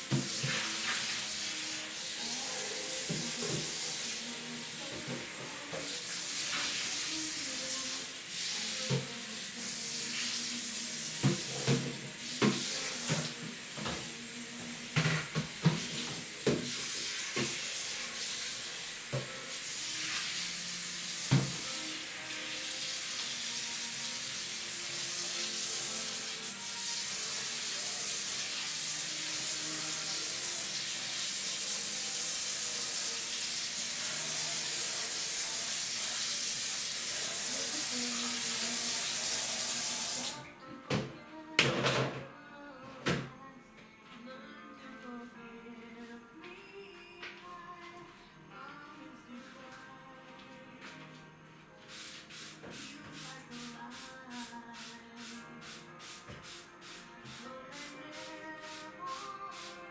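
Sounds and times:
tap water running into sink: 0:00.0 - 0:09.3, 0:10.0 - 0:14.1, 0:14.8 - 0:40.4.

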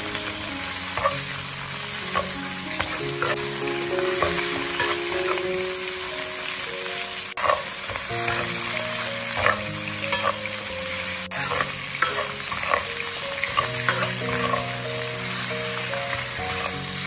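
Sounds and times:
meat sizzling in hot oil: 0:00.0 - 0:17.0
soft background music: 0:00.0 - 0:17.0
metal ladle scraping wok: 0:00.8 - 0:05.5, 0:07.4 - 0:08.6, 0:09.3 - 0:17.0.

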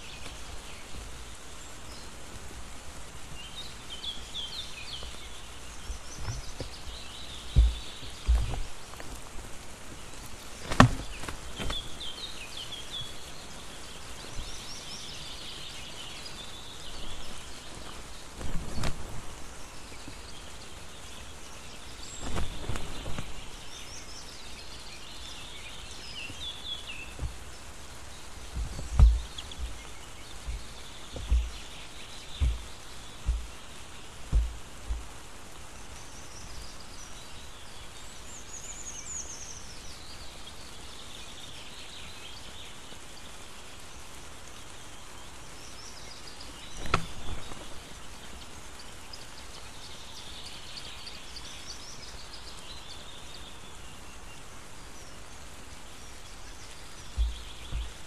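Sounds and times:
steady rain hiss: 0:00.0 - 0:58.0
high chattering bird calls: 0:03.4 - 0:58.0
sharp low thumps: 0:07.5 - 0:08.7, 0:28.4 - 0:35.2, 0:57.1 - 0:58.0.

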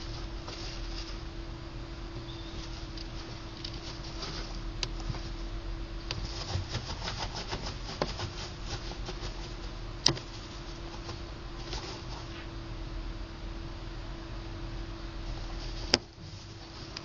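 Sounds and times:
gerbil scratching and nibbling: 0:00.0 - 0:01.3, 0:02.2 - 0:05.5, 0:06.1 - 0:12.5, 0:15.2 - 0:17.0.

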